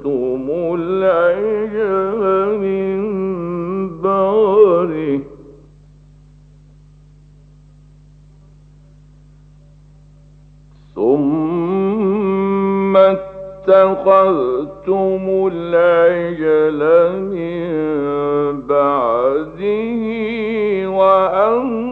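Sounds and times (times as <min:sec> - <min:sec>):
man chanting melodically: 0:00.0 - 0:05.6, 0:10.9 - 0:21.9
low recording hum: 0:00.0 - 0:21.9.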